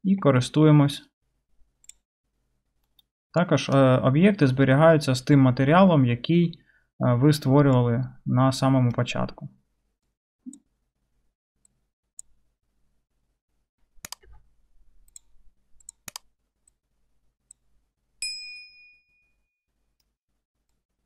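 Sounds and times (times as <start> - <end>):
faint mouse clicks: 1.8 - 2.0, 14.0 - 14.4
sharp clicks: 15.1 - 16.3.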